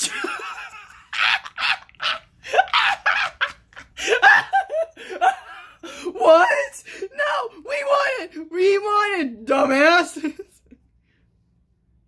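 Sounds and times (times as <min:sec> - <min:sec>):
breathy laughter: 0:00.0 - 0:06.1.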